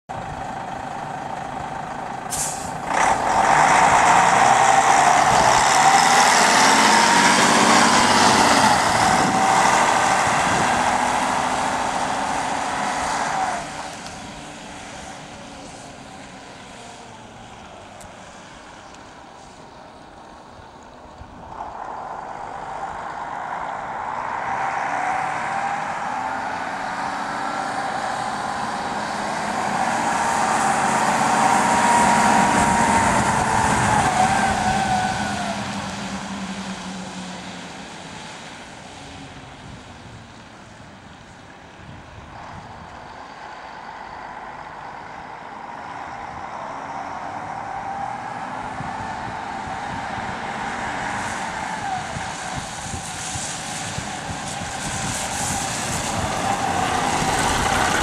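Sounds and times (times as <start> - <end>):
bus engine accelerating: 0.1 - 58.0
air hiss: 2.3 - 2.8.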